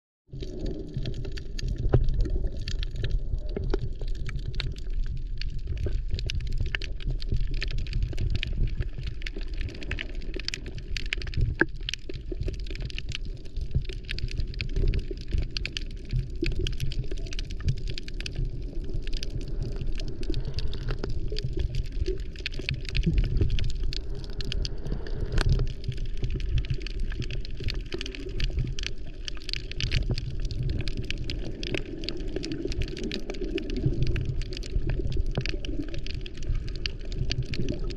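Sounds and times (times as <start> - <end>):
fine underwater crackle: 0.3 - 37.9
underwater rumble of moving water: 0.3 - 37.9.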